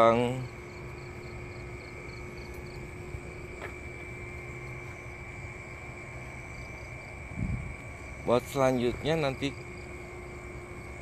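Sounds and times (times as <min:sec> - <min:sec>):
high-pitched insect drone: 0:00.0 - 0:11.0
wind rumble on microphone: 0:07.2 - 0:08.0.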